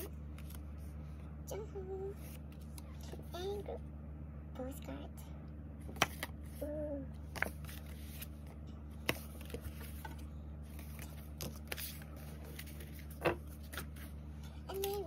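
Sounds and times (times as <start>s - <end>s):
steady low hum: 0.0s - 15.0s
cards sliding against cards: 9.0s - 14.2s
cards tapping down: 10.8s - 14.1s.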